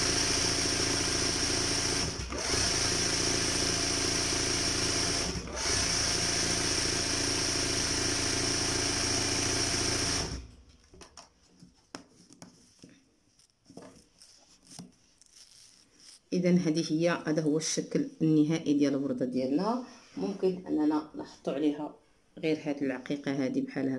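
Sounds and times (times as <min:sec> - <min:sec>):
sewing machine stitching: 0:00.0 - 0:10.5.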